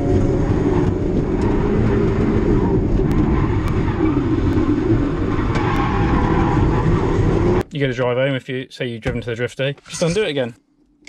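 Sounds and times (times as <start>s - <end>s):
car engine under load: 0.0s - 7.6s.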